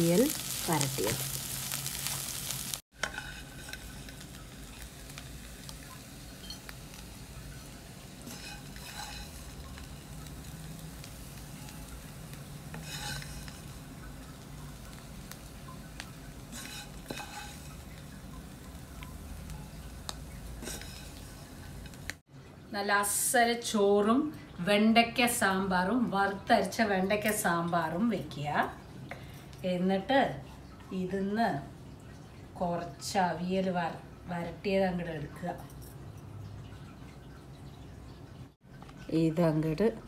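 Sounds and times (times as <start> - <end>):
faint sizzle: 0.0 - 40.0
spatula scraping vegetables: 0.2 - 4.3, 8.2 - 10.0, 12.7 - 13.8, 16.5 - 18.0, 20.6 - 21.6.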